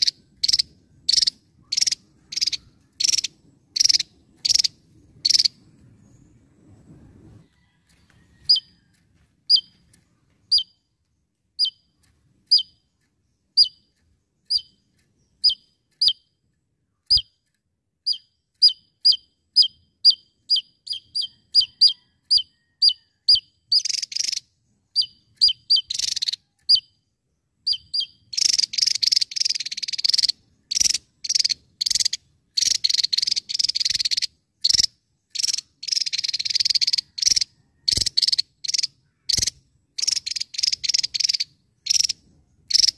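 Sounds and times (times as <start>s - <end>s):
bird singing high notes and trills: 9.5s - 42.9s.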